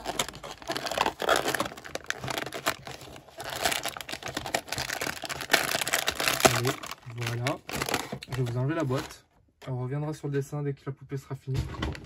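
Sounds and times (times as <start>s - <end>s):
packaging crinkling and rustling: 0.0s - 9.2s.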